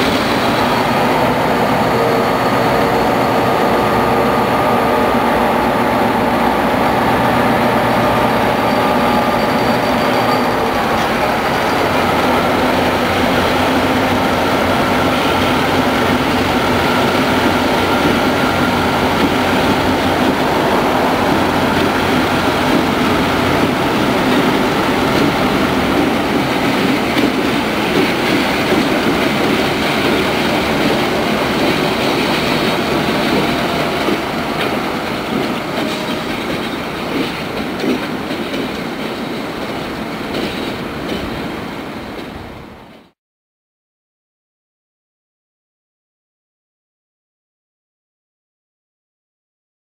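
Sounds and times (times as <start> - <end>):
diesel locomotive engines running: 0.0 - 43.0
train wheels clattering on track: 6.4 - 43.1.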